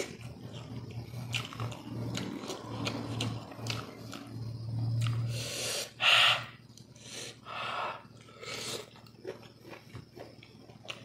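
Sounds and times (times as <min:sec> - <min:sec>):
man chewing: 0:00.0 - 0:04.4, 0:05.0 - 0:06.0, 0:08.1 - 0:11.0
short noisy breaths: 0:05.3 - 0:08.9.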